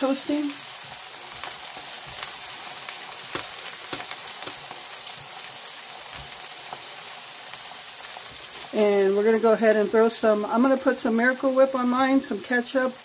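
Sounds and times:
patties sizzling on a griddle: 0.0s - 13.0s
grease popping: 0.7s - 8.8s.

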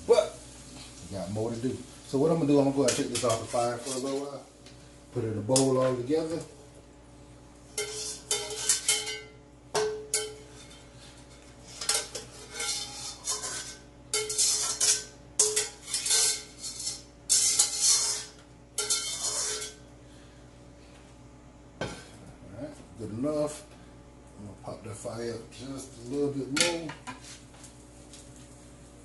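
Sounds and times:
spatula scraping a wok: 2.8s - 4.4s, 7.7s - 9.3s, 10.1s - 19.9s.

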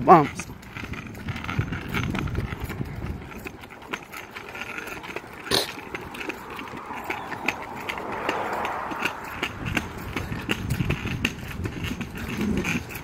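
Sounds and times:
scooter wheels clacking on concrete: 0.0s - 13.0s
soft rushing noise: 5.9s - 11.7s.

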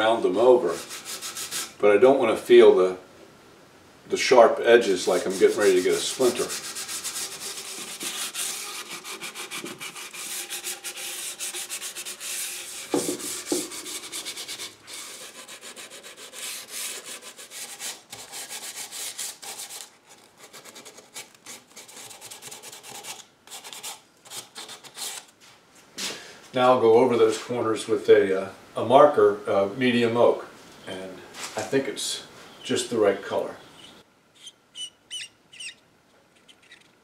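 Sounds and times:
sandpaper rubbing on wood: 0.6s - 1.8s, 4.8s - 25.2s.

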